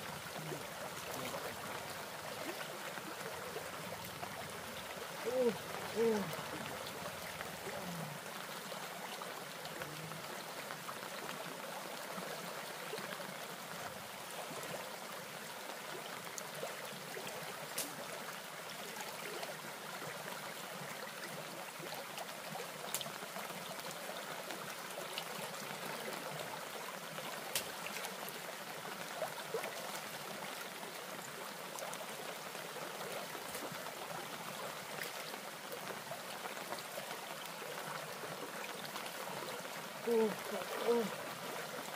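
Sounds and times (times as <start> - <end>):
stream water rushing: 0.0 - 41.9.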